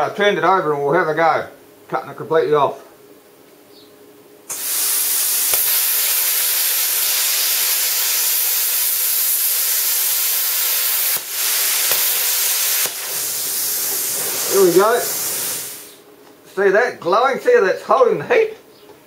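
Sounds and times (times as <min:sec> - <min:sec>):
plasma cutter arc hissing: 0:04.5 - 0:16.0.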